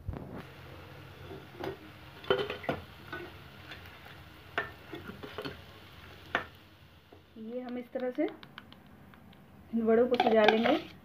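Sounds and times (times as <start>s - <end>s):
hot oil sizzling: 0.0s - 8.7s
metal spoon clinking on pan: 10.1s - 10.8s.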